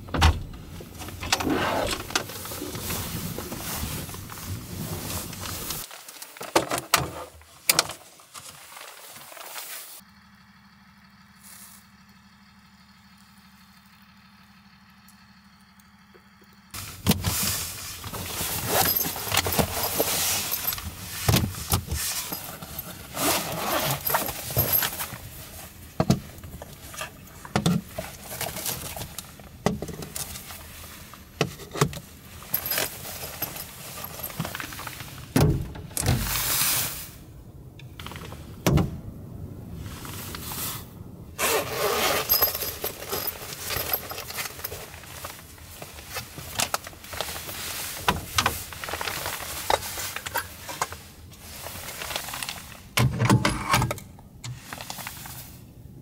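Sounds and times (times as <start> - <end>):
clicks and knocks of gear: 0.0 - 9.9, 15.8 - 36.5, 41.4 - 55.4
fabric rustling: 0.8 - 6.1, 41.4 - 52.8.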